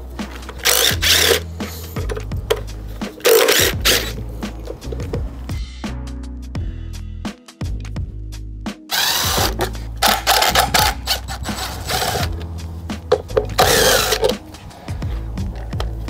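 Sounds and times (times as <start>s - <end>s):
cordless drill spinning bolts: 0.5s - 2.6s, 3.2s - 4.2s, 8.9s - 12.4s, 13.4s - 14.4s.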